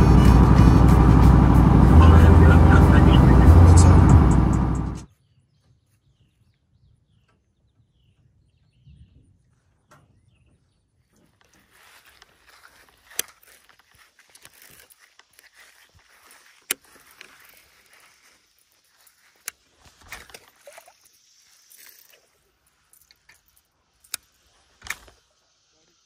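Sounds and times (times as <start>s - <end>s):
rustling footsteps: 11.1s - 20.7s.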